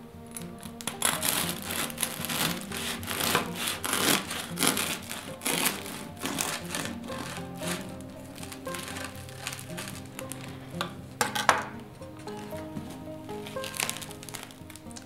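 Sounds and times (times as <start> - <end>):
bread knife sawing crust: 0.8 - 10.6.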